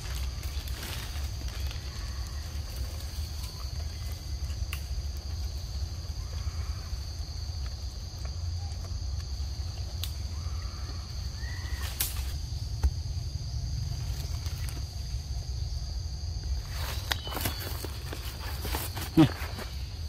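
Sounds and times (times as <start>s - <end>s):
high insect drone: 0.0s - 20.0s.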